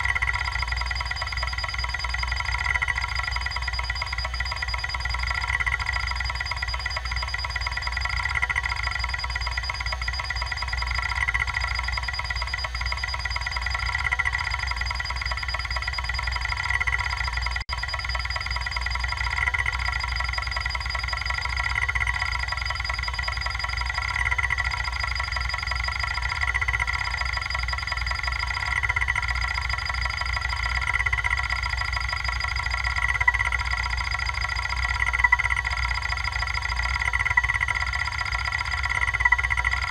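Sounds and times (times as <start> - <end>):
hard drive seeking whine: 0.0 - 39.9.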